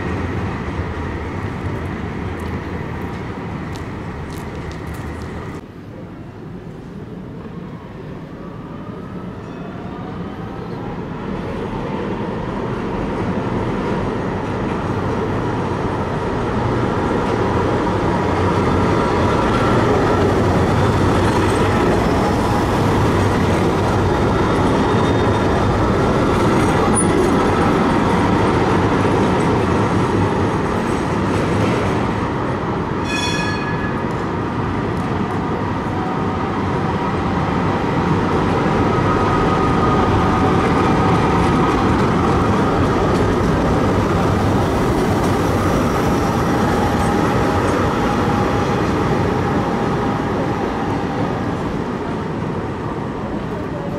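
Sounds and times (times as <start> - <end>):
tram wheels rumbling on rails: 0.0 - 53.9
brief shrill tone: 33.0 - 34.1.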